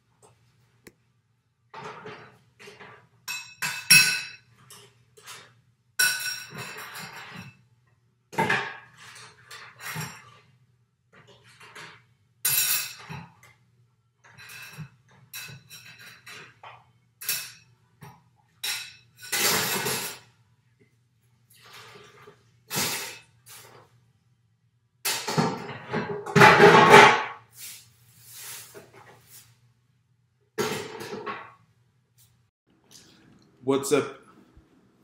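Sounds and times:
clattering clinks and knocks: 1.8s - 7.6s.

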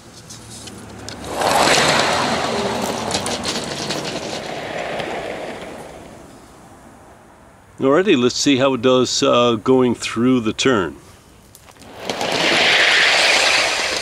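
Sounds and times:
metal wheels rolling on track: 0.6s - 6.5s, 11.7s - 14.0s.

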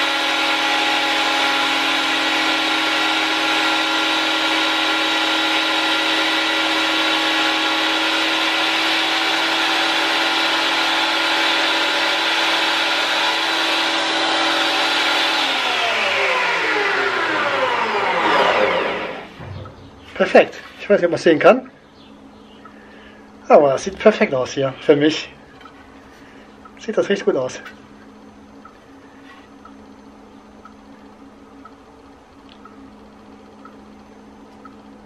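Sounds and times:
motor spinning down: 0.0s - 20.4s
planer motor whine: 0.0s - 20.8s.

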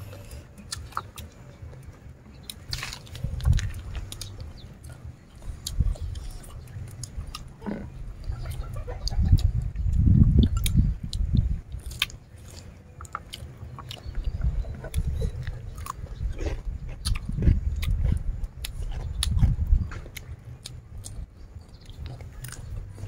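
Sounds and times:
chewing and biting food: 0.0s - 23.0s
sharp crunches: 2.5s - 5.0s.

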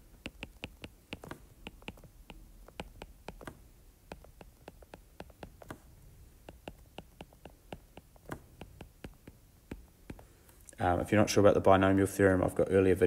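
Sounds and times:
stylus tapping on tablet screen: 0.0s - 10.4s.

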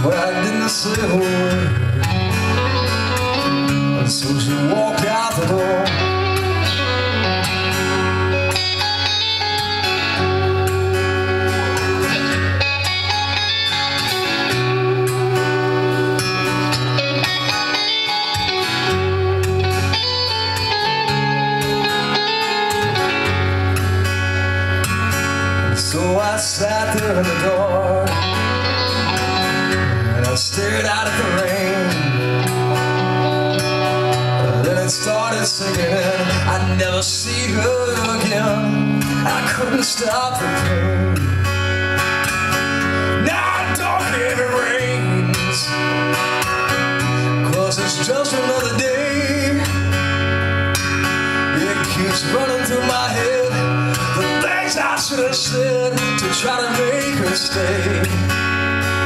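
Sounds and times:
man singing: 0.0s - 7.5s, 25.6s - 41.6s, 43.0s - 46.2s, 47.1s - 50.0s, 51.4s - 58.4s
acoustic guitar: 0.0s - 59.0s.

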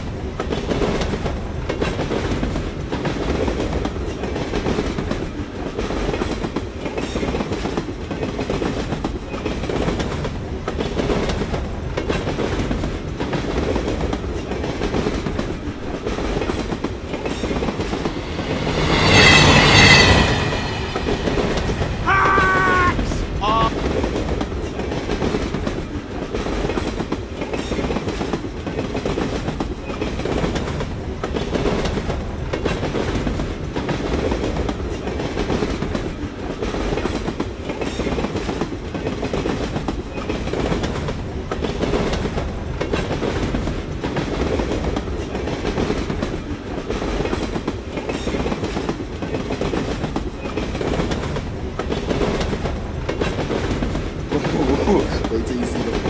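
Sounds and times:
wheels clacking over rail joints: 0.0s - 19.2s
railway wagons rumbling: 0.0s - 56.0s.

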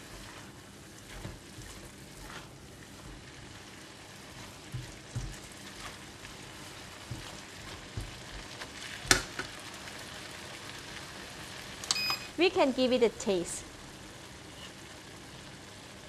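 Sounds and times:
spatula scraping wok: 0.0s - 9.1s, 14.5s - 14.8s
stir-fry sizzle in wok: 0.0s - 16.0s.

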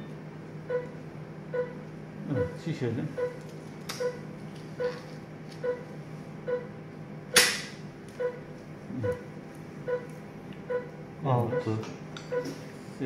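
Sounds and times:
patient monitor beeping: 0.0s - 6.7s, 8.2s - 12.6s
low steady hum: 0.0s - 13.0s
sharp click: 7.3s - 7.7s.

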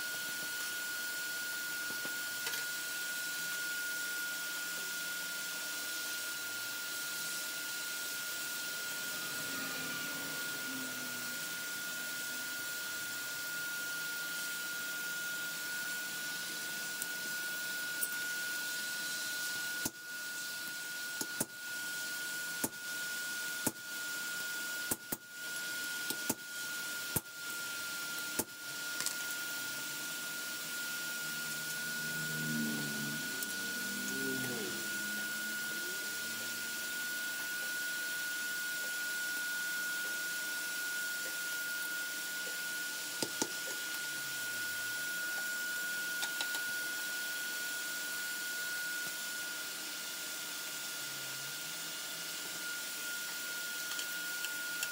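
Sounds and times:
forge air blower whine and hiss: 0.0s - 54.9s.

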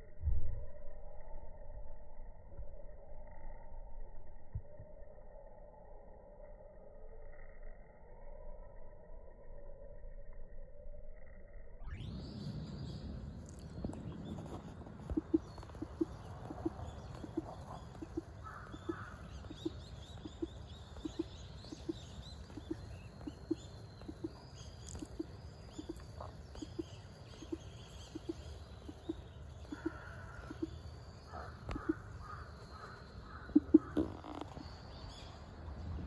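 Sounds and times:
soft low pulse: 0.0s - 34.8s
birds calling: 12.0s - 36.0s.

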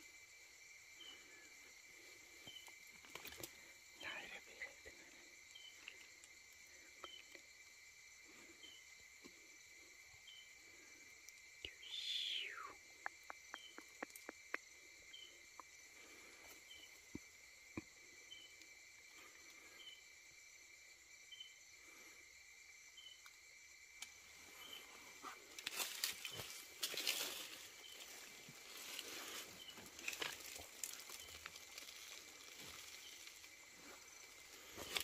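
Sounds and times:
crickets trilling: 0.0s - 35.0s
rustling of brush: 24.7s - 35.0s.

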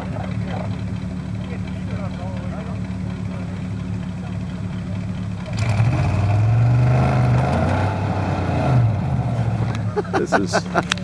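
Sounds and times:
truck engine revving: 0.0s - 11.0s.

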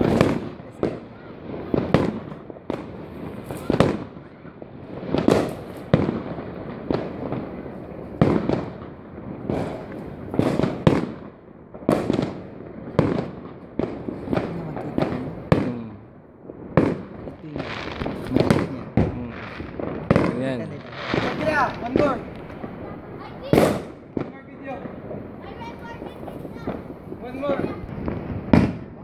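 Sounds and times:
fireworks bangs: 0.0s - 29.0s.

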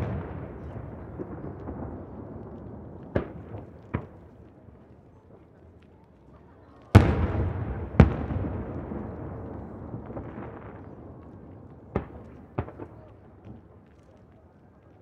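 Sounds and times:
firework bangs: 0.0s - 4.4s, 6.9s - 13.6s.

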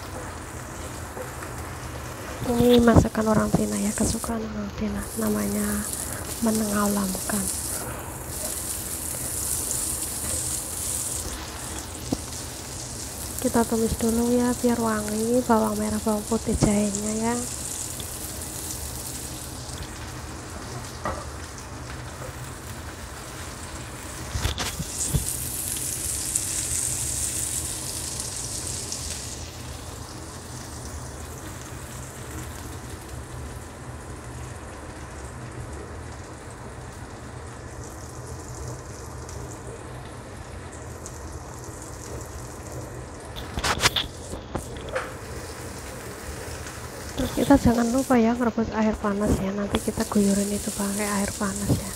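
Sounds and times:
vegetables sizzling in hot oil: 0.0s - 51.9s.

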